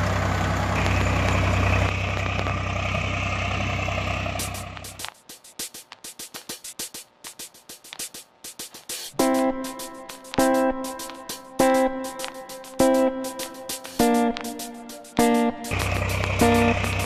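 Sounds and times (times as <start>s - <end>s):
tractor engine idling: 0.0s - 5.1s, 15.7s - 17.0s
plucked guitar chord: 9.2s - 17.0s.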